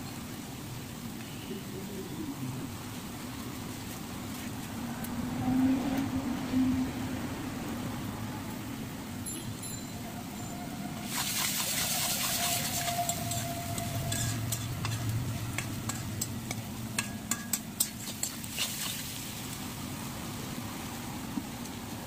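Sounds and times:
vegetables sizzling in a wok: 0:11.0 - 0:22.0
metal spatula scraping a wok: 0:11.1 - 0:18.4.

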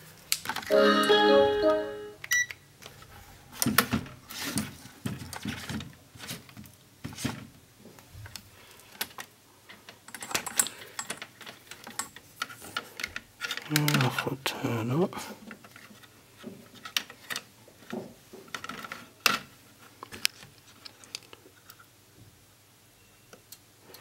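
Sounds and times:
tv power-on chime: 0:00.7 - 0:02.2.

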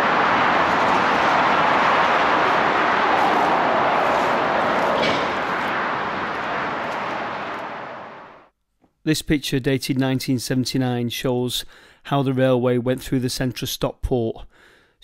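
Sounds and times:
heavy motorway traffic roar: 0:00.0 - 0:08.5.

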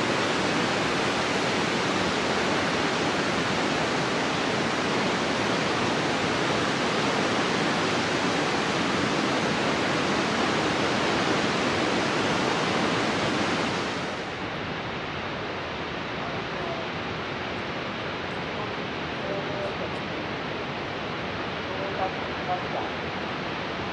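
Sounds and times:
water spilling over dam: 0:00.0 - 0:14.3
water jet blasting from dam outlet: 0:00.0 - 0:14.4.

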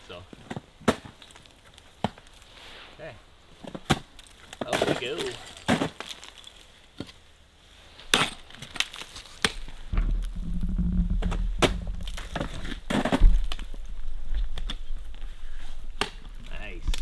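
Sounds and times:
low rumble: 0:09.9 - 0:12.5.

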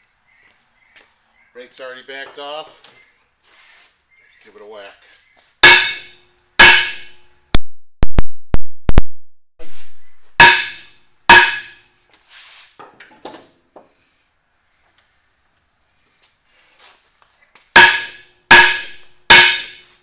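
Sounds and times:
sledgehammer clanging on steel drum: 0:05.6 - 0:07.3, 0:10.4 - 0:11.9, 0:17.8 - 0:20.0.

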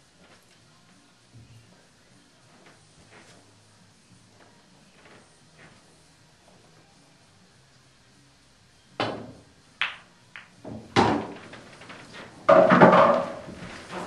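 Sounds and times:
cue striking ball: 0:09.0 - 0:11.5, 0:12.4 - 0:13.6
balls clattering: 0:09.0 - 0:14.0
balls knocking on cushions: 0:09.0 - 0:14.0
pool balls clicking: 0:09.0 - 0:14.0.

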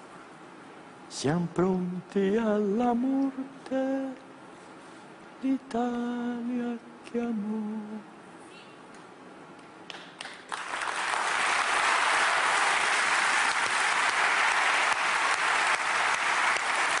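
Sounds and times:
audience applause: 0:10.2 - 0:17.0.

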